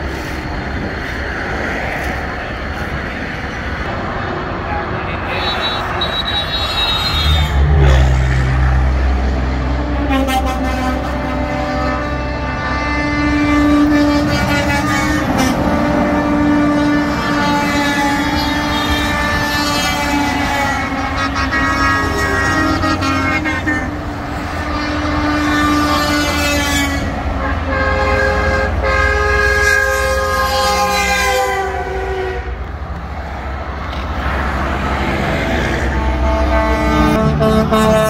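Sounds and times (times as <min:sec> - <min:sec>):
heavy highway traffic rumble: 0:00.0 - 0:38.0
truck air horns blasting: 0:05.2 - 0:08.3, 0:09.5 - 0:32.6, 0:35.0 - 0:38.0.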